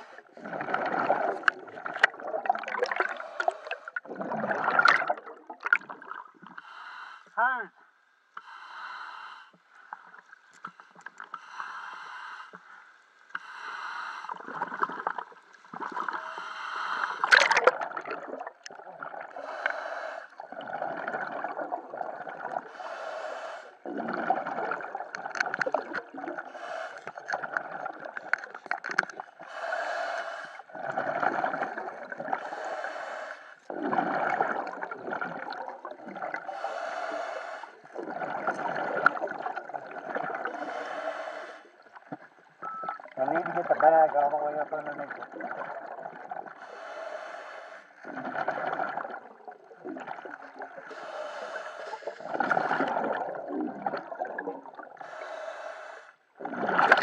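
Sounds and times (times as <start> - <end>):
diver breathing through regulator: 0.0 - 1.5, 2.7 - 4.3, 6.5 - 7.4, 8.4 - 9.7, 10.8 - 14.9, 16.0 - 17.5, 19.3 - 20.5, 22.5 - 24.4, 26.3 - 27.8, 29.4 - 34.8, 36.1 - 39.2, 40.4 - 42.0, 46.5 - 48.6, 50.8 - 53.3, 54.8 - 56.3
bubbling exhalations: 0.0 - 6.6, 14.3 - 19.8, 20.4 - 22.8, 23.6 - 30.0, 30.7 - 33.0, 33.7 - 47.0, 48.0 - 55.4, 56.4 - 57.0.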